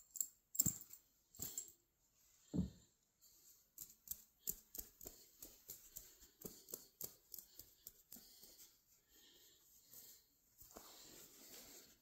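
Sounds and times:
hands handling stuffed toys: 2.4 - 12.0.

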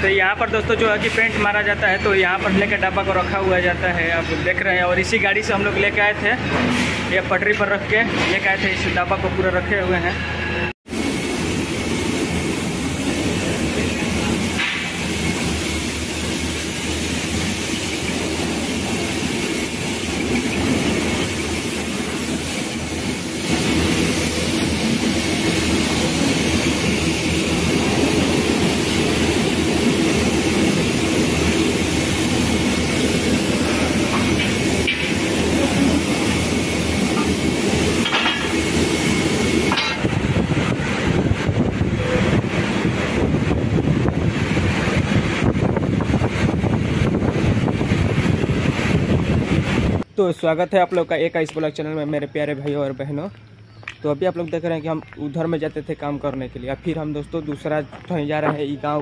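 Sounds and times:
metal clanks: 39.7 - 40.1.

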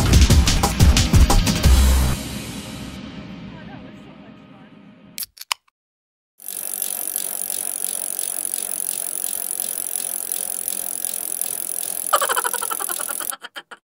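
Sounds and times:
rapidly pulsing ring: 6.4 - 13.4
rapid ratchet-like clicking: 6.4 - 13.7.

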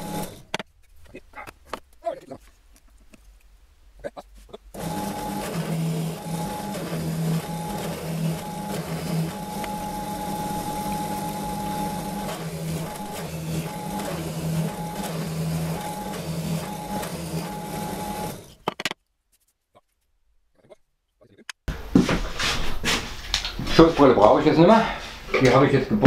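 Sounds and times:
drill bit cutting into wood: 0.0 - 0.4, 4.8 - 18.6
drill press motor hum: 0.0 - 0.5, 4.8 - 18.6.

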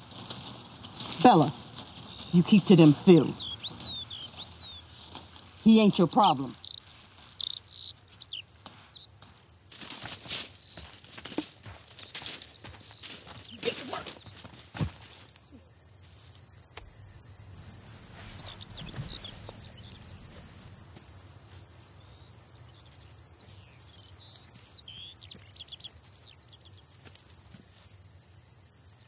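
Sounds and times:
birds chirping: 0.0 - 28.7
faint insect buzz: 0.0 - 29.0
low steady rumble: 16.8 - 22.5.

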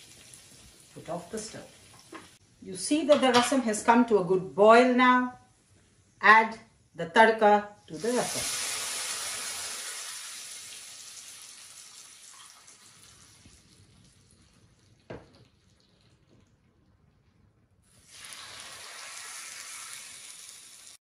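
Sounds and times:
hot oil sizzling: 0.0 - 2.4, 7.9 - 16.2, 17.8 - 21.0.

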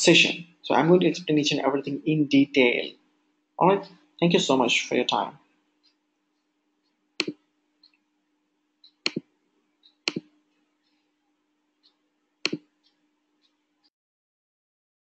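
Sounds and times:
computer mouse clicking: 7.2 - 8.0, 8.8 - 10.3, 11.8 - 13.0.

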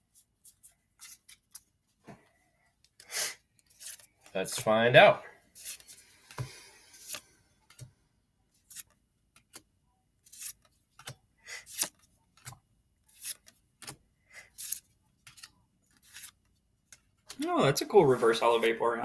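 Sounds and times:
trading cards swishing: 3.7 - 4.1, 5.6 - 7.3.

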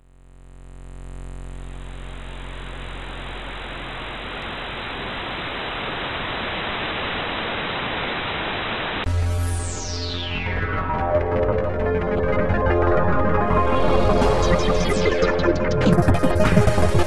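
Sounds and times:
low hum: 0.0 - 7.8
television static hiss: 0.7 - 9.1.

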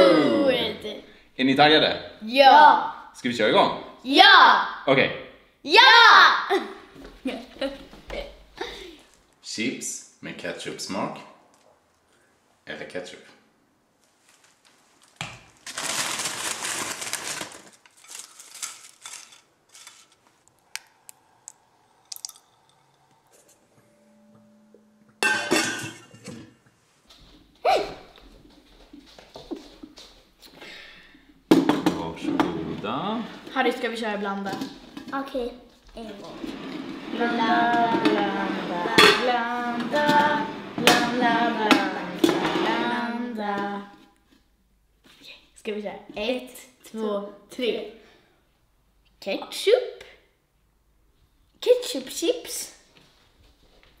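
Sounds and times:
foil crisp bag crinkling: 14.2 - 20.6.

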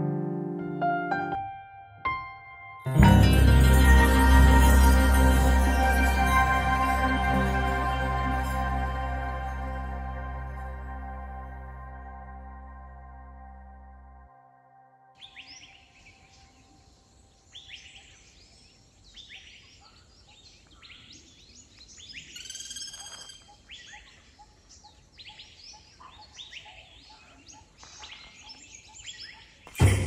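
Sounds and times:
loud thump: 29.7 - 30.0.

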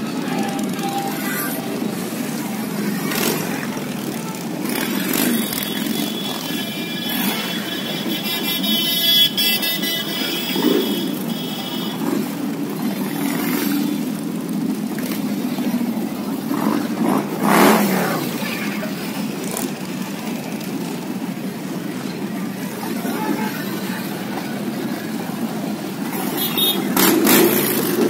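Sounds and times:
motorcycle passing: 0.0 - 6.3, 12.1 - 28.0
motorcycle engines running: 0.0 - 28.0.

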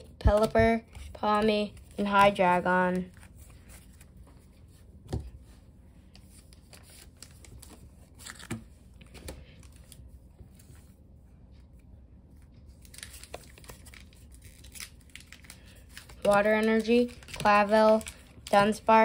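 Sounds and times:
foil crinkling and tearing: 12.8 - 18.8.

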